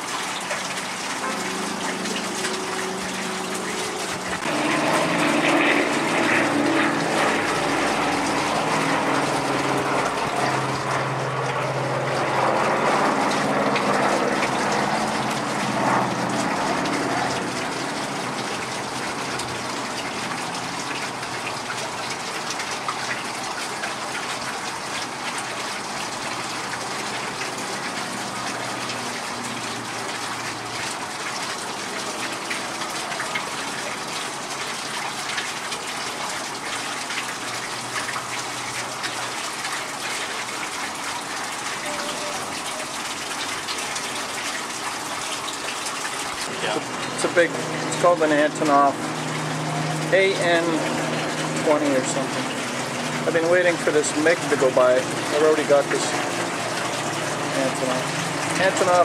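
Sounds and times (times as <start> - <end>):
propeller plane droning past: 1.0 - 21.4
steady rushing noise: 1.2 - 17.8.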